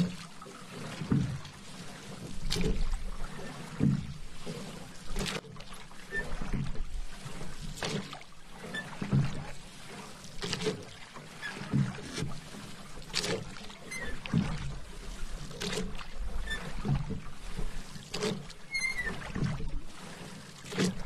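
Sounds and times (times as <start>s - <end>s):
paddle strokes through water: 0.0s - 21.0s.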